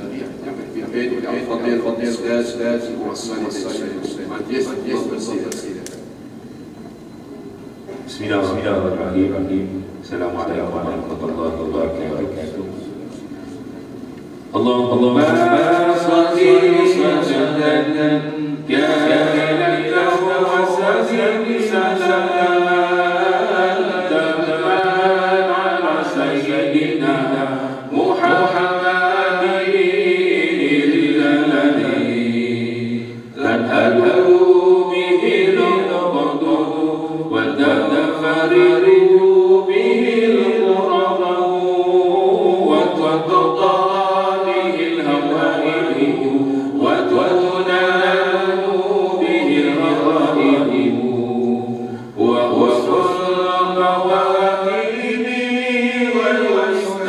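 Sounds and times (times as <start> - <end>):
men chanting a prayer: 0.0 - 5.8, 8.0 - 13.7, 14.6 - 57.0.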